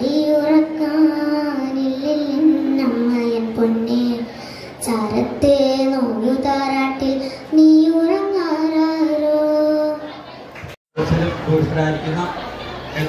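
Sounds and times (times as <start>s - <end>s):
children singing slow melody: 0.0s - 10.4s.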